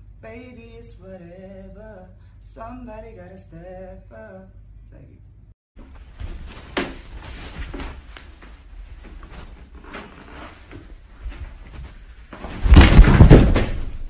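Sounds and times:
person falling down stairs: 0:05.8 - 0:14.0.

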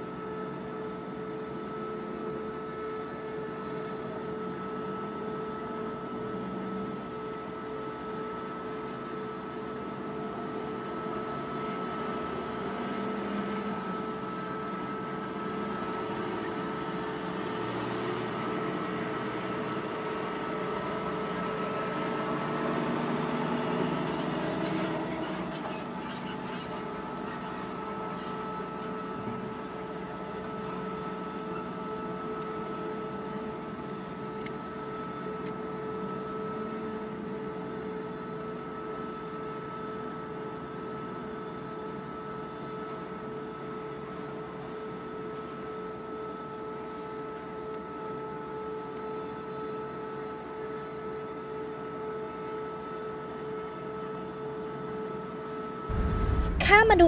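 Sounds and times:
steady mechanical whine: 0:55.8 - 0:57.0
diesel machinery running: 0:55.9 - 0:57.0.

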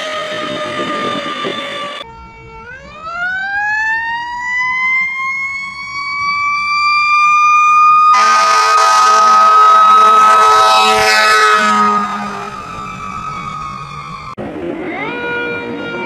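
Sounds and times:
air horn blasting: 0:08.1 - 0:12.8.

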